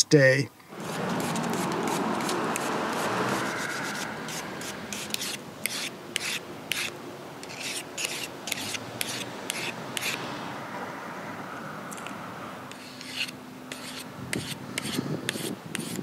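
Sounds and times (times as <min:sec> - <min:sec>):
wire brush scrubbing blade: 0:00.8 - 0:10.2, 0:12.7 - 0:16.0
file sharpening blade: 0:01.2 - 0:10.2, 0:12.7 - 0:16.0.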